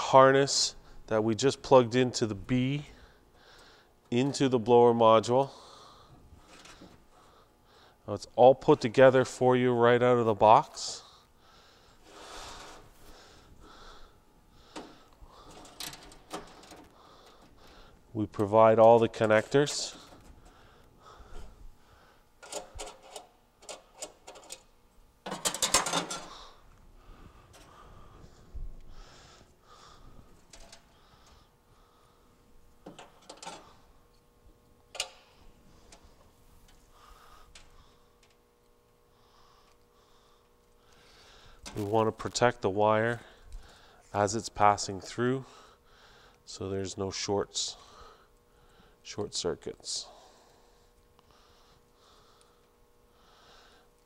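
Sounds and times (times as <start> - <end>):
wires clicking and rustling: 14.7 - 21.5, 22.4 - 26.9, 30.1 - 31.4, 32.8 - 34.3, 34.9 - 36.9, 37.5 - 38.8, 39.6 - 42.4
wiring harness rustling: 40.8 - 42.4.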